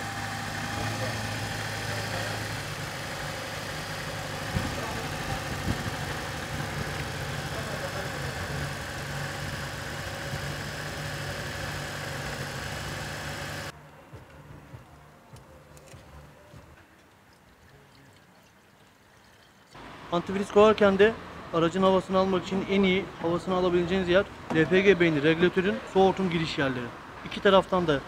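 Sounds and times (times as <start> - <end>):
car engine idling: 0.0 - 13.7.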